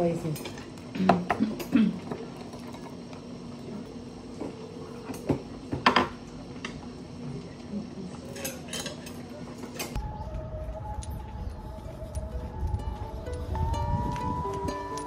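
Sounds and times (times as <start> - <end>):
steady low hum: 0.0 - 15.0
dishes and cutlery clinking: 8.3 - 10.0
background music: 10.0 - 15.0.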